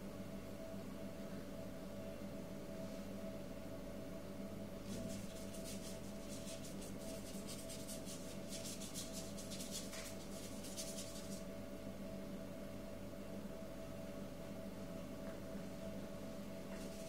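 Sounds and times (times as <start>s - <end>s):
steady hum: 0.0s - 17.0s
paintbrush scratching on paper: 4.9s - 11.4s.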